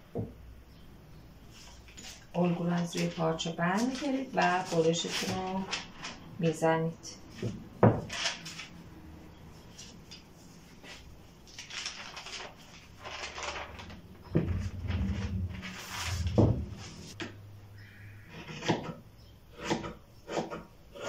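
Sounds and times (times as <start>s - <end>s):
paper rustling: 1.5s - 6.3s, 7.3s - 8.8s, 9.7s - 17.2s.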